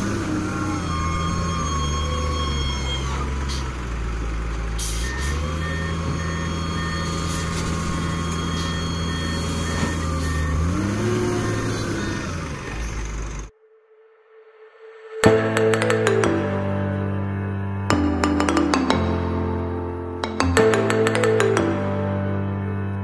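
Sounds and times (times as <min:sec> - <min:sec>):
wheel loader diesel engine: 0:00.0 - 0:13.5, 0:15.6 - 0:23.0
rapid beeping alarm: 0:00.2 - 0:03.3, 0:05.0 - 0:11.1.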